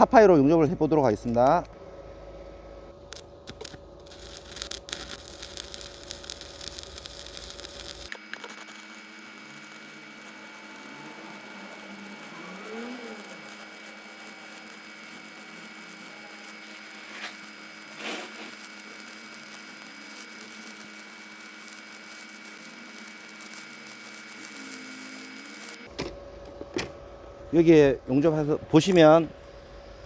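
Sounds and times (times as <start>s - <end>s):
faint welder hum: 0.0s - 30.0s
welding arc frying hiss: 2.2s - 25.9s.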